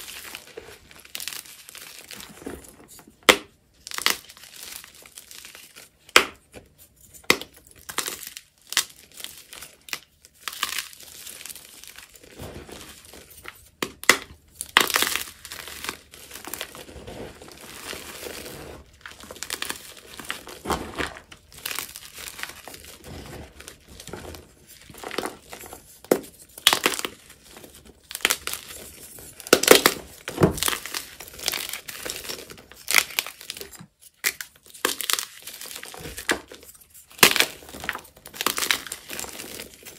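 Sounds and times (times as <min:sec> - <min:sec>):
chalk crunching and snapping: 0:07.0 - 0:39.9
powdery rustling: 0:11.2 - 0:13.8, 0:15.3 - 0:26.6.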